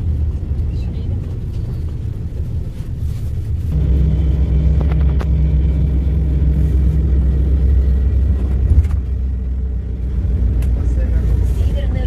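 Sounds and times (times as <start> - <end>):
bus diesel engine: 0.0 - 12.0.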